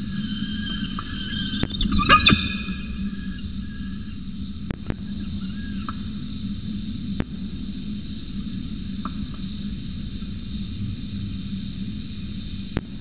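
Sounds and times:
low steady hum: 0.0s - 8.6s
cicada chorus: 0.0s - 13.0s.

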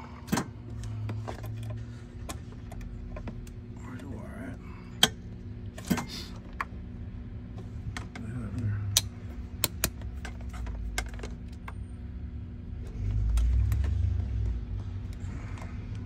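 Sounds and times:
phone handling rumble: 7.6s - 12.0s
clicks and taps of test probes: 8.9s - 11.8s.

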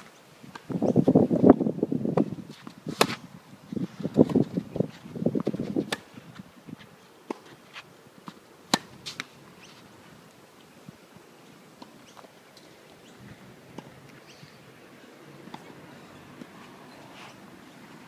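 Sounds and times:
racket striking tennis ball: 2.9s - 3.2s, 8.3s - 9.3s
tennis ball bouncing: 8.2s - 9.3s, 13.7s - 14.2s.

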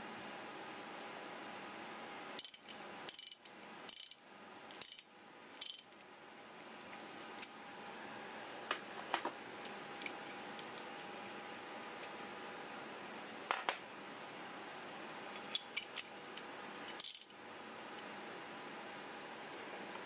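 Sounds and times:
ratchet wrench clicking: 2.4s - 5.9s.

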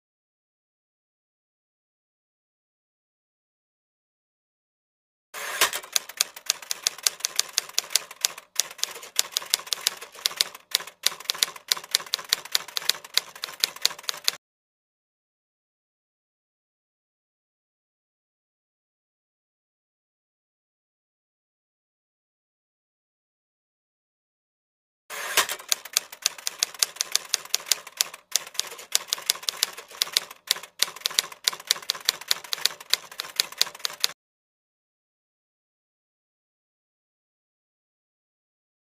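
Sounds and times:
typewriter keys clacking: 5.6s - 14.4s, 25.4s - 34.2s
typewriter key clicks: 25.4s - 34.2s.

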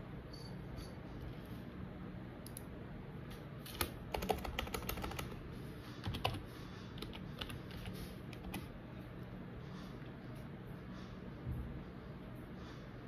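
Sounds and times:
keyboard typing clicks: 3.7s - 5.4s.

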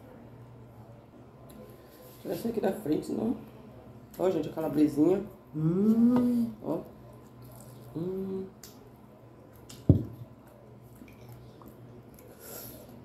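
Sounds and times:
person humming mm: 5.6s - 6.6s, 7.9s - 8.6s
wet chewing sounds: 9.4s - 12.4s.

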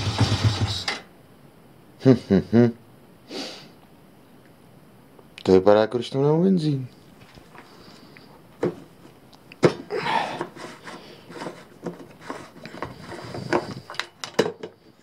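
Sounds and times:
filler cap scraping: 10.3s - 14.0s.

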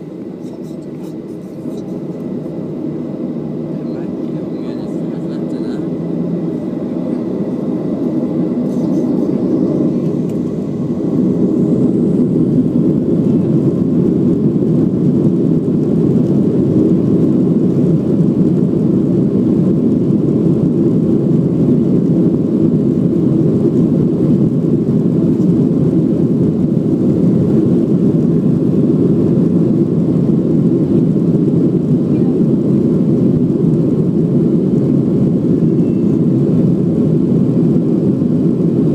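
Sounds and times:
jet engine cabin noise: 0.0s - 38.9s.

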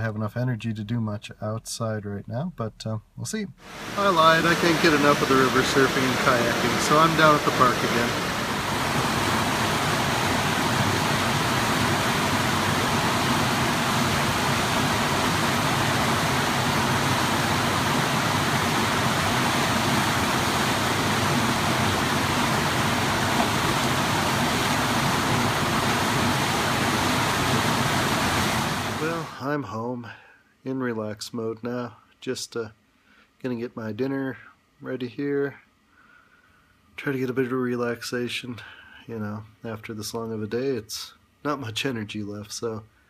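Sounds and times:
white water rushing: 3.6s - 29.4s.

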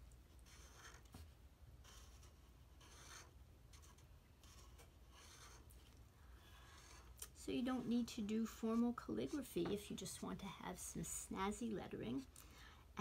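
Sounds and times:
marker tip scratching on wood: 0.4s - 1.2s, 1.8s - 5.7s.

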